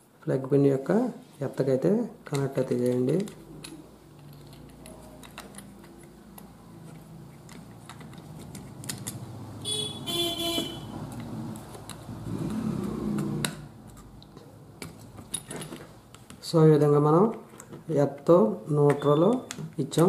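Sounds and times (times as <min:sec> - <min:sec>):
screwdriver clicks and scrapes: 0:02.3 - 0:09.2.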